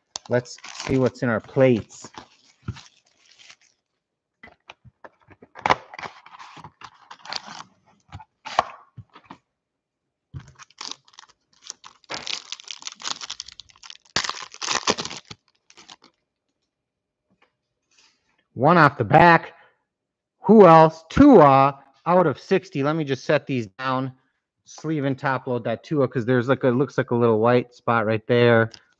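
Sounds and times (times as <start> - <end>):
foil wrapper tearing and crinkling: 0.0 - 3.9, 6.2 - 7.7, 10.5 - 16.2.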